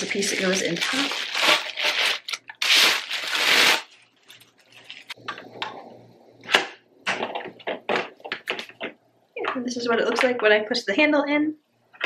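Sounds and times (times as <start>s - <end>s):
plastic bag crinkling: 0.0s - 5.2s
plastic clicks and knocks: 6.6s - 9.0s.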